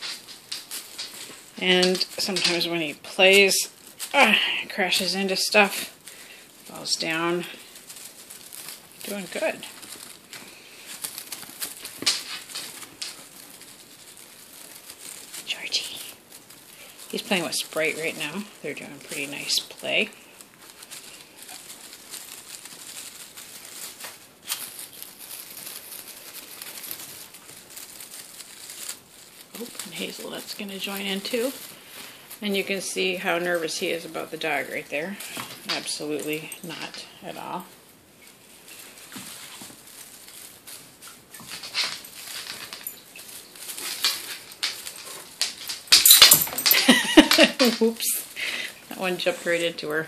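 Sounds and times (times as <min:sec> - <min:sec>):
cat toy rustling and crinkling: 0:00.0 - 0:50.0
paws scrabbling on fabric: 0:06.0 - 0:19.5, 0:20.3 - 0:36.7.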